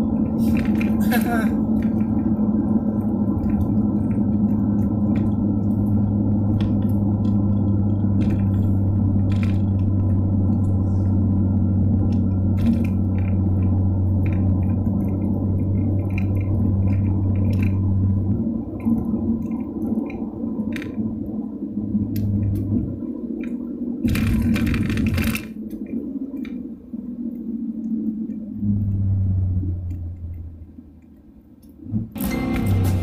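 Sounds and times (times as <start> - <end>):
car engine cruising hum: 0.0 - 33.0
tyre and road noise: 0.0 - 33.0.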